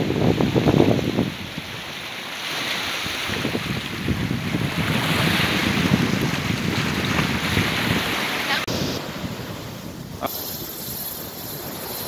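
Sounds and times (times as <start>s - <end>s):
wind buffeting microphone: 0.0s - 2.0s, 3.0s - 12.0s
sea waves breaking on rocks: 0.0s - 10.3s.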